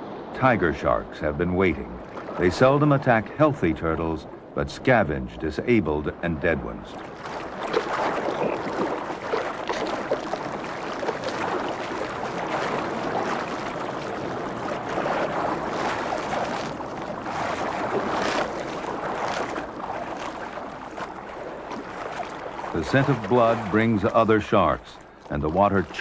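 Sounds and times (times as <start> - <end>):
sea water splashing and sloshing: 0.0 - 26.0
sharp water splash: 1.8 - 2.8, 6.9 - 26.0.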